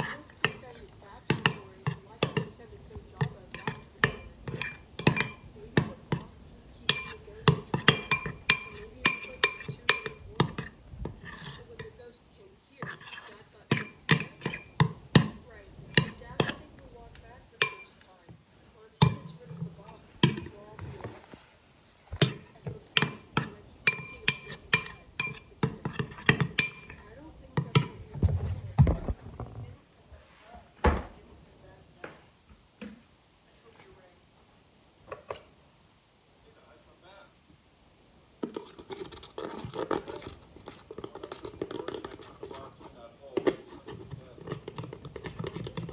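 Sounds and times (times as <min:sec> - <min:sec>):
spoon clinking on glass bowl: 0:03.2 - 0:06.2, 0:06.8 - 0:10.7, 0:12.8 - 0:16.6, 0:17.6 - 0:18.0, 0:19.0 - 0:19.5, 0:20.2 - 0:20.6, 0:22.2 - 0:28.0.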